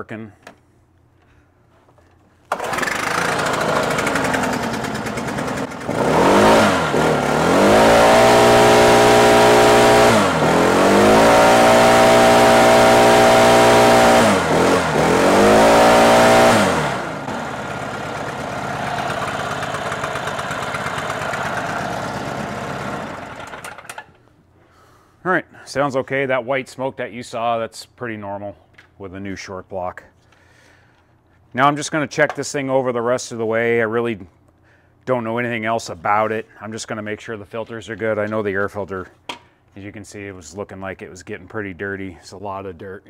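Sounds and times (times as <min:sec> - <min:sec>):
blower fan rushing: 0:02.4 - 0:24.2
backpack blower engine: 0:02.5 - 0:24.1.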